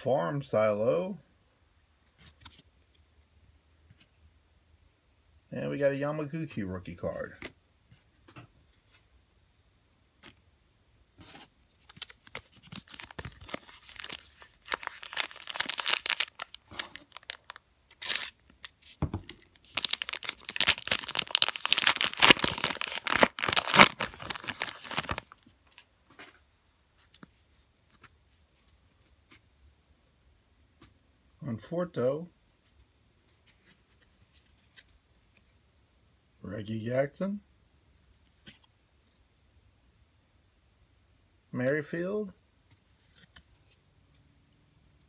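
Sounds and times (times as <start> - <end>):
foil wrapper crinkling: 11.8 - 25.8.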